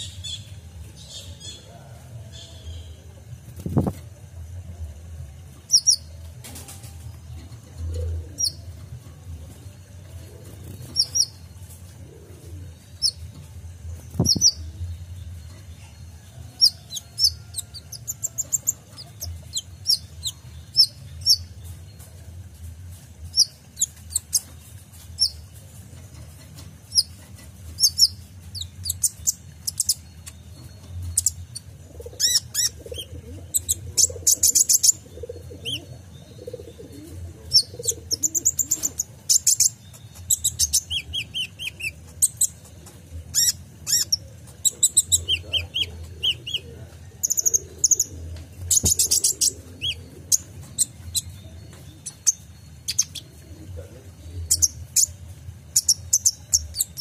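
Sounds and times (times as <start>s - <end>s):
steady low hum: 0.0s - 57.0s
bird chirping and trilling: 5.7s - 6.1s, 8.3s - 8.6s, 10.6s - 11.4s, 14.0s - 16.0s, 26.9s - 42.7s, 43.3s - 53.4s, 54.1s - 57.0s.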